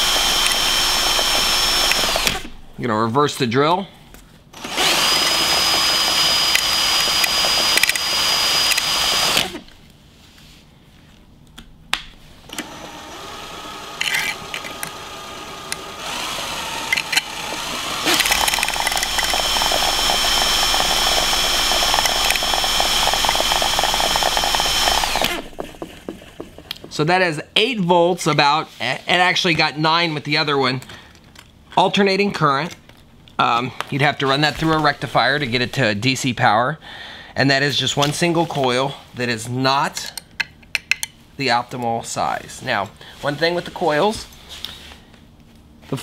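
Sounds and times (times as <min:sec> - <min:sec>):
cordless drill spinning rotor whine: 0:00.0 - 0:02.6, 0:04.6 - 0:09.7, 0:12.5 - 0:25.8.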